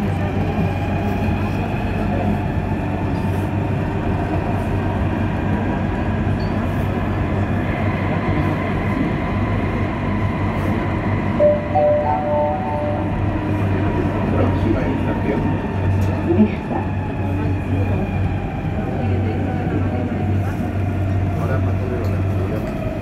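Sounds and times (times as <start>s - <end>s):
train running through tunnel: 0.0s - 23.0s
short high tones: 11.4s - 13.3s.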